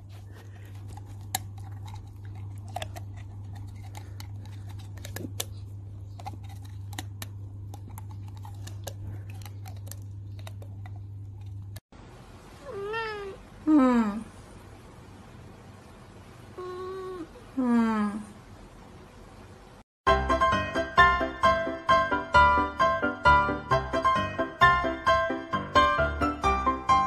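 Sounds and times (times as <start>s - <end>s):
low steady hum: 0.0s - 19.8s.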